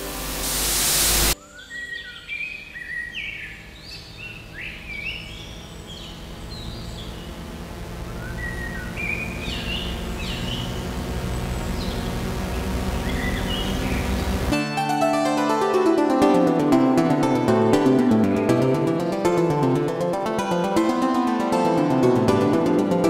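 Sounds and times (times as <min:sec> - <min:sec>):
loud burst of hiss: 0:00.0 - 0:01.4
bird-like chirps: 0:01.4 - 0:07.4, 0:08.1 - 0:12.1
low steady drone: 0:03.3 - 0:23.0.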